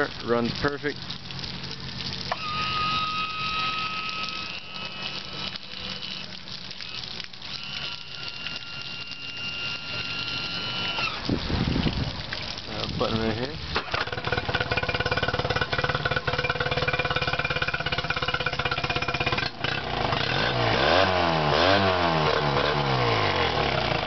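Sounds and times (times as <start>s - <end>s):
outboard motor idling: 1.2s - 12.4s, 13.3s - 24.0s
electric tilt motor whining: 2.3s - 11.2s.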